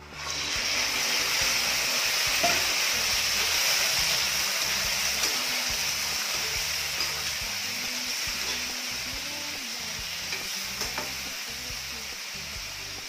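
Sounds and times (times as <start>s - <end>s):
spatula scraping a wok: 0.0s - 9.0s
crab frying in hot oil: 0.0s - 13.0s.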